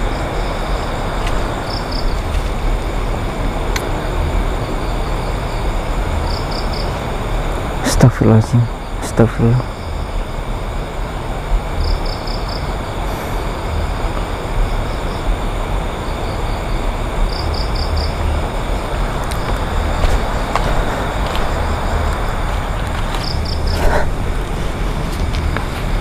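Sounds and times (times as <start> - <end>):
high insect drone: 0.0 - 26.0
steady rushing noise: 0.0 - 26.0
footsteps on dry leaves: 19.0 - 26.0.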